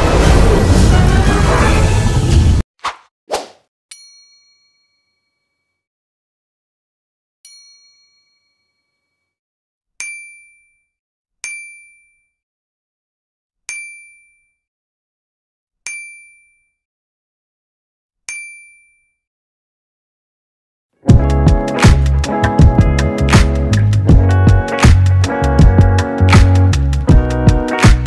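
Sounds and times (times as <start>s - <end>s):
bright bell-like dings: 3.9s - 5.8s, 7.5s - 9.3s, 10.0s - 12.4s, 13.7s - 14.6s, 15.9s - 16.8s, 18.3s - 19.2s.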